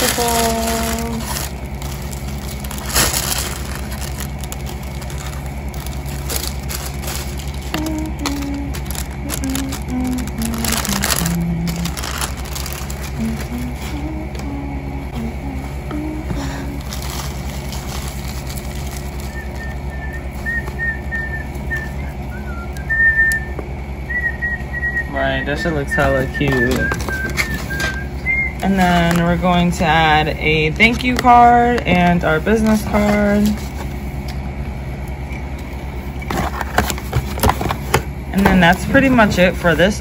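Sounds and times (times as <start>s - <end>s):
tinsel and cellophane rustling: 0.0s - 14.1s, 16.4s - 20.9s
steady low hum: 0.0s - 40.0s.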